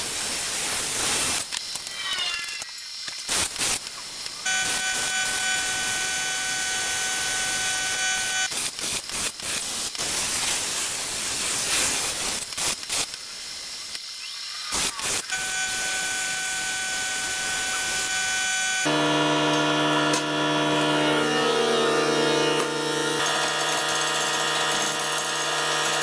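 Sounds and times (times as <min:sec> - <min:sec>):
plasma torch hissing: 0:00.0 - 0:06.0, 0:08.2 - 0:19.1
steady high tone: 0:15.4 - 0:24.9.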